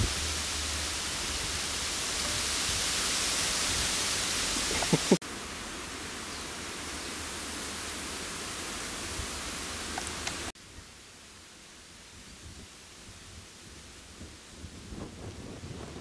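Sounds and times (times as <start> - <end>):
wind noise: 0.0 - 5.2, 12.1 - 16.0.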